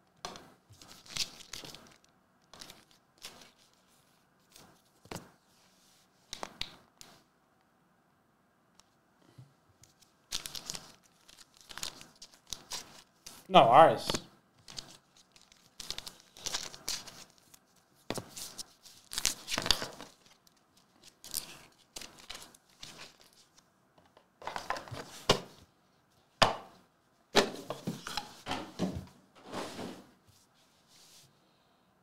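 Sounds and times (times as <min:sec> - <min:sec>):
rustles and crinkles of card holders: 0:00.3 - 0:07.3, 0:09.2 - 0:25.7.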